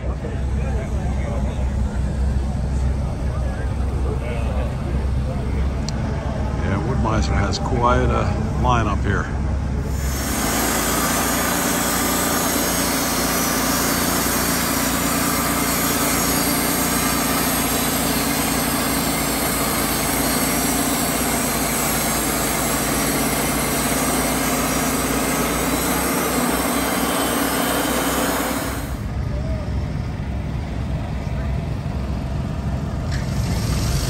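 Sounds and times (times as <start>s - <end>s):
chute blowing sawdust: 0.0s - 34.0s
sawmill engine running: 0.0s - 34.0s
band blade cutting log: 9.9s - 29.0s.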